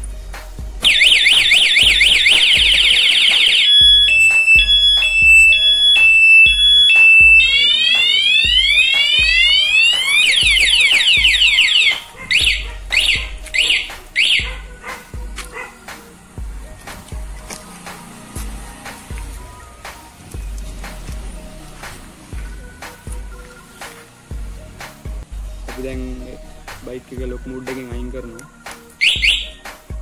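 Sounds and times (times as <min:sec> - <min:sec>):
alarm chirps: 0:00.8 - 0:14.6, 0:29.0 - 0:29.7
motorcycle alarm siren: 0:00.8 - 0:15.4, 0:29.0 - 0:29.8.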